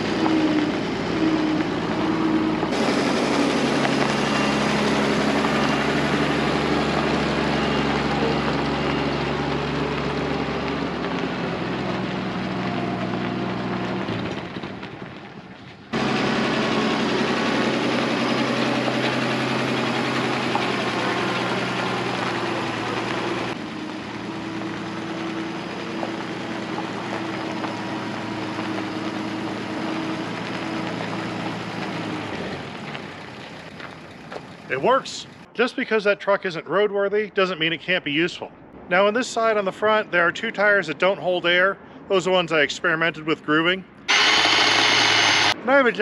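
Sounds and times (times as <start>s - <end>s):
truck driving across gravel: 0.0s - 35.5s
truck engine running: 0.0s - 35.5s, 44.0s - 45.6s.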